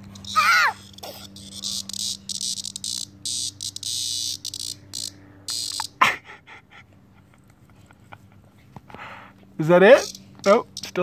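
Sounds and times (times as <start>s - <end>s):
cicada distress buzz: 0.0s - 6.0s, 9.6s - 11.0s.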